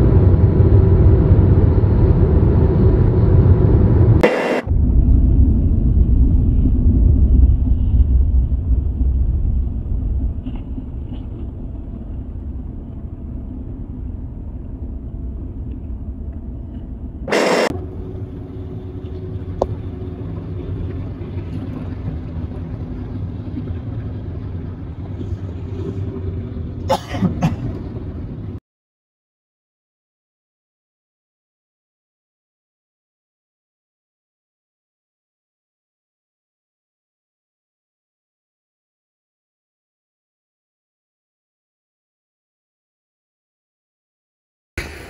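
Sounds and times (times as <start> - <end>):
car road and engine rumble: 0.0 - 28.6.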